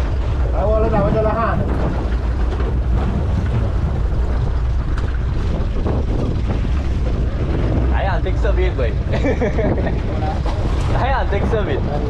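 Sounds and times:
water sloshing against boat hulls: 0.0 - 8.3, 9.6 - 12.0
wind buffeting microphone: 0.0 - 12.0.

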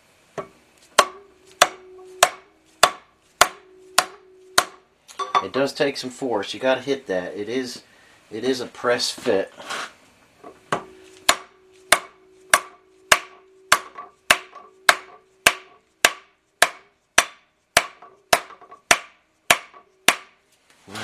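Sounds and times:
hammer blows on steel pipe: 0.4 - 5.4, 10.7 - 20.3
metal ringing tone: 1.2 - 2.6, 3.5 - 5.6, 10.4 - 15.8.

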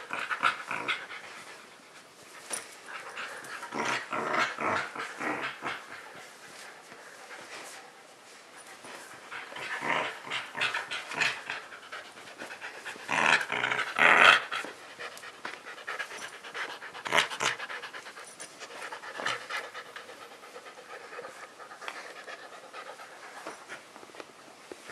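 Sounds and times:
dog panting: 4.8 - 24.0.

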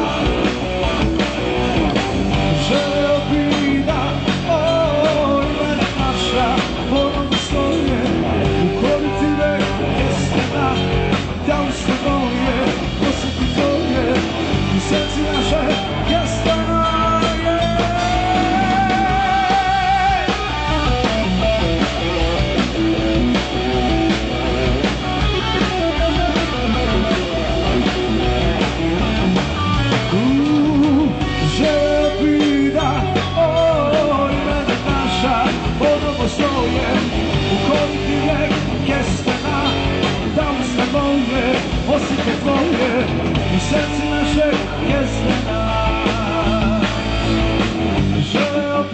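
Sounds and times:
rock band playing: 0.0 - 48.9
steady drumming: 0.0 - 48.9
person singing: 2.4 - 21.1, 29.9 - 47.2, 48.2 - 48.9.

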